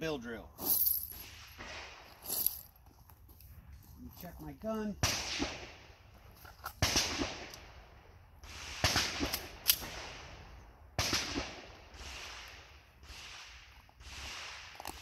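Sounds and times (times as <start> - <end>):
gunshots echoing: 1.2 - 2.1, 5.0 - 6.0, 6.8 - 7.8, 8.4 - 15.0.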